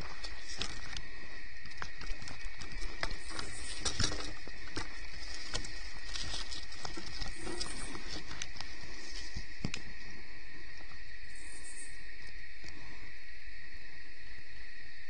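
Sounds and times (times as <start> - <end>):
light rustling: 0.0 - 10.0
crickets chirring: 0.0 - 15.0.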